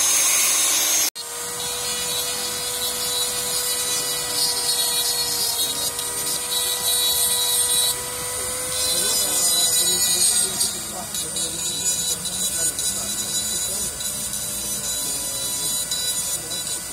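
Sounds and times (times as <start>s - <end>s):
angle grinder cutting metal: 0.0s - 16.9s
rotary tool whining: 0.0s - 16.9s.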